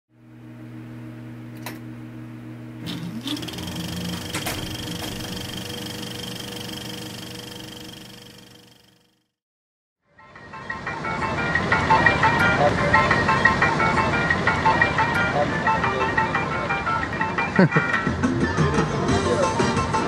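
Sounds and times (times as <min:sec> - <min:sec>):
mechanical whirring hum: 0:00.2 - 0:09.3
high whine: 0:02.7 - 0:09.2.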